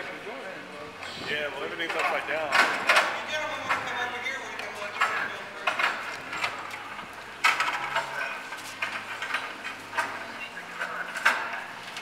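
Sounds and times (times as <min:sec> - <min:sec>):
metallic clanks and knocks: 0:01.8 - 0:04.0, 0:07.4 - 0:10.3.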